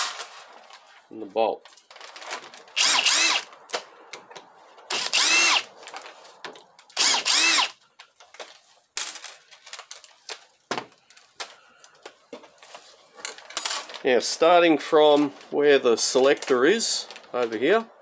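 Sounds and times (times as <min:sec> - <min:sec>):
cordless drill spinning: 0:02.8 - 0:03.6, 0:04.9 - 0:05.7, 0:07.0 - 0:07.8.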